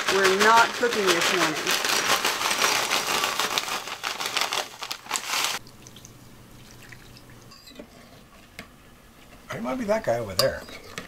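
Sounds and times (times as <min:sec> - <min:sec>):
cereal pouring into bowl: 0:00.0 - 0:05.6
plastic bag crinkling: 0:00.0 - 0:05.6.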